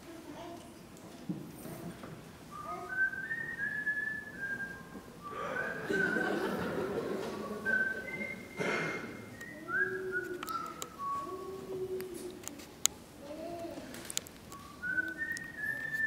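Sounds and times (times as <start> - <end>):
audience noise: 1.8 - 12.8
person whistling: 2.5 - 6.7, 7.4 - 11.9, 14.6 - 16.0.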